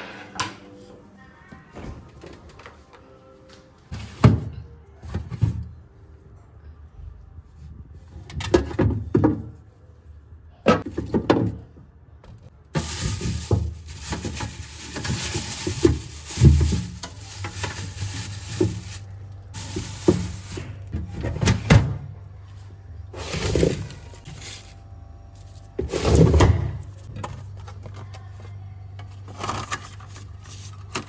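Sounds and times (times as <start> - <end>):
utensils clattering: 12.8 - 21.0.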